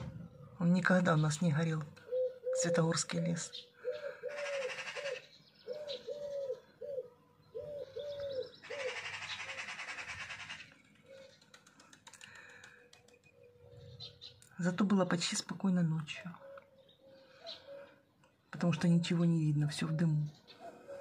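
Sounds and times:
dove cooing: 2.0 - 14.4, 16.3 - 18.1, 19.7 - 21.0.

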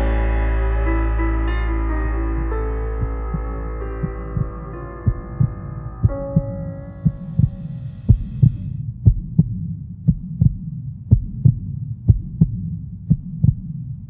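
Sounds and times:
sustained musical chord: 0.0 - 8.0
steady low hum: 0.0 - 14.0
low paired heartbeat thumps: 2.3 - 14.0.

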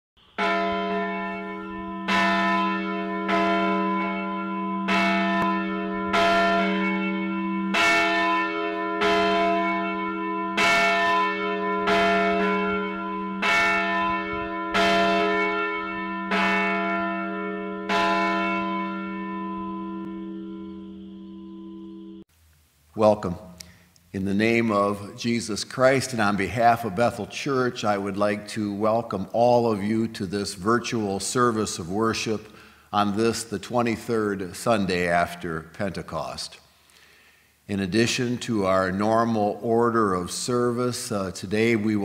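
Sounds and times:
church bell ringing: 0.2 - 22.2.

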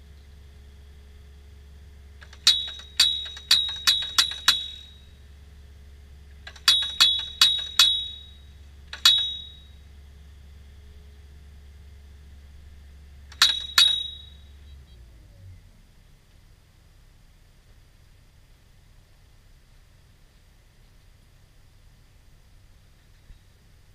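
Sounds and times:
steady low hum: 0.0 - 23.9
post driver hammering metal post: 2.2 - 5.0, 6.5 - 9.7, 13.3 - 14.4.

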